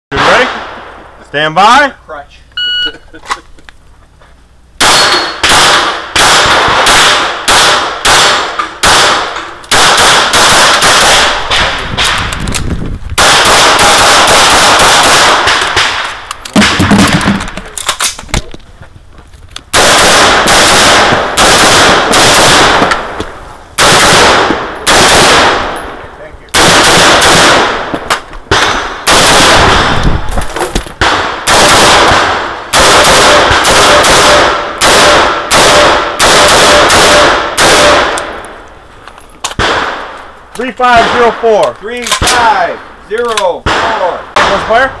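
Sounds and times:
rifle rapid fire: 0.1s - 0.8s, 4.8s - 12.4s, 13.2s - 17.6s, 19.7s - 23.2s, 23.8s - 25.8s, 26.5s - 30.3s, 31.0s - 38.4s, 39.6s - 40.1s, 43.6s - 44.9s
pistol shots: 0.1s - 0.9s, 4.8s - 12.3s, 13.2s - 18.1s, 19.7s - 23.2s, 23.8s - 30.3s, 31.0s - 38.4s, 39.5s - 40.2s, 43.4s - 44.9s.

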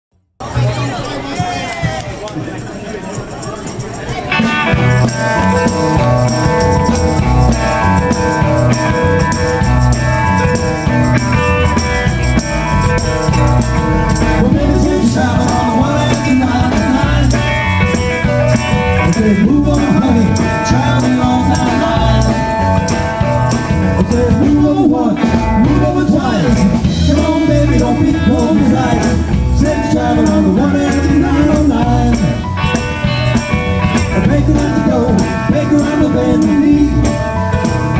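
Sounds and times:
blues-rock band playing: 4.1s - 37.9s
man singing lead vocal: 13.3s - 32.8s, 33.8s - 37.7s.

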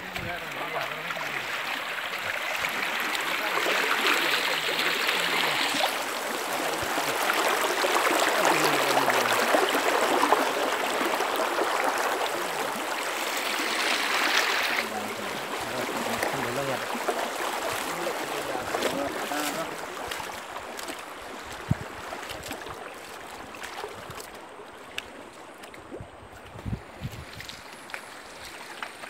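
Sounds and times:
river rushing over rocks: 0.2s - 20.6s.

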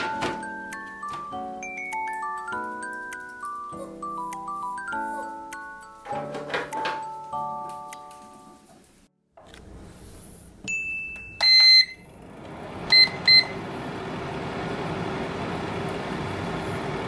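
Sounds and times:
dehydrator fan humming: 11.4s - 17.0s.

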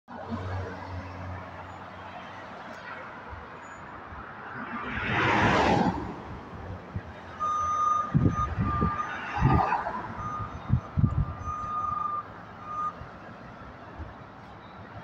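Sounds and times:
car passing by: 4.3s - 6.7s
truck backup alarm beeping: 7.3s - 13.1s.

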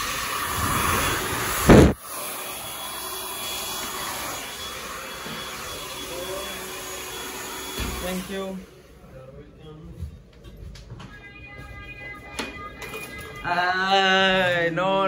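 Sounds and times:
hair dryer blowing: 0.0s - 8.8s.

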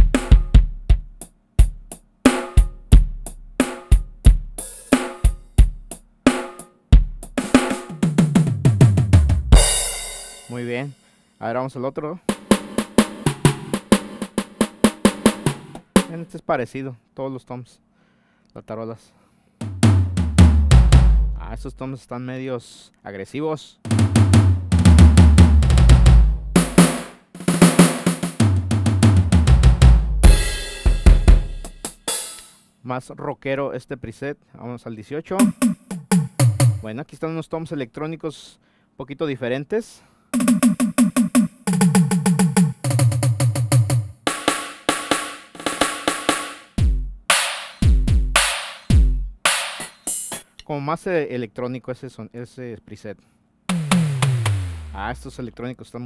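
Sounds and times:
electronic drum beat: 0.0s - 10.7s, 12.3s - 16.3s, 19.6s - 21.8s, 23.9s - 32.4s, 35.4s - 36.9s, 40.4s - 50.4s, 53.7s - 55.5s
tom fill: 4.0s - 11.1s, 12.3s - 16.4s, 19.6s - 21.9s, 23.9s - 32.6s, 40.4s - 50.6s, 53.7s - 55.6s
electronic drum pad fills: 23.9s - 32.1s, 35.4s - 36.8s, 53.7s - 55.4s.

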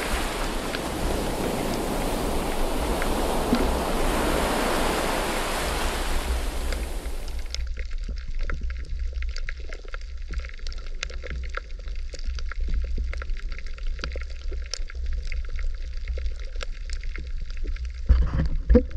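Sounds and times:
rushing water hiss: 0.0s - 7.6s
underwater rumble: 0.0s - 18.9s.

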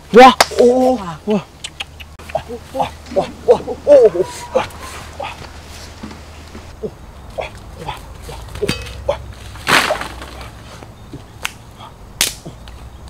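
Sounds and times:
sharp cracks: 8.6s - 10.7s, 11.4s - 12.8s.

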